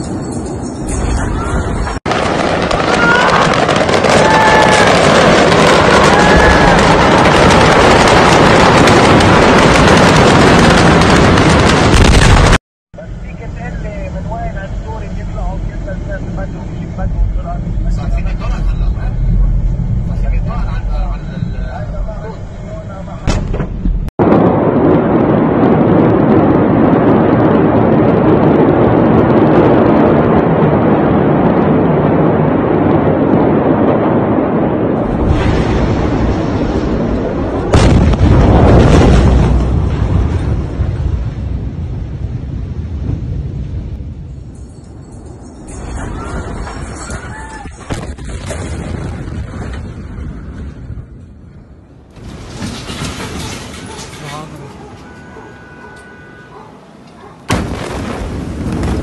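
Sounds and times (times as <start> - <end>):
loud rumbling noise: 1.0 - 44.6
fire crackling and popping: 2.0 - 12.6, 57.5 - 59.0.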